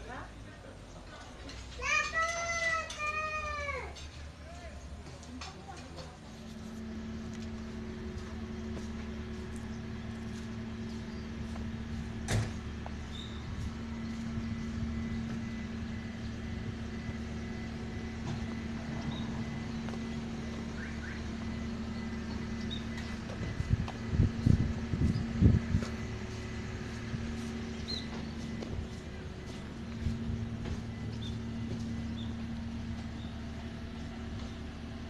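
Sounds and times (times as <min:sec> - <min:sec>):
vehicle engine hum: 0:00.0 - 0:35.0.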